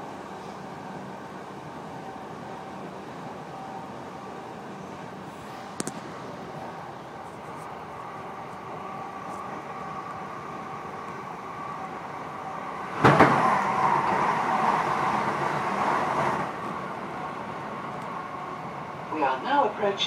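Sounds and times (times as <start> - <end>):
loud rush of train noise: 0.0 - 20.0
train wheels rumbling on rails: 5.6 - 19.8
train clunk: 12.9 - 14.2.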